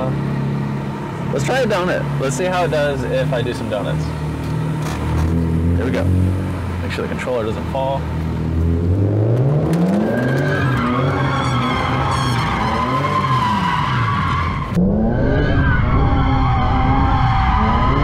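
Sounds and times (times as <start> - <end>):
car engine revving: 0.0 - 18.0
tyres squealing: 10.0 - 14.8.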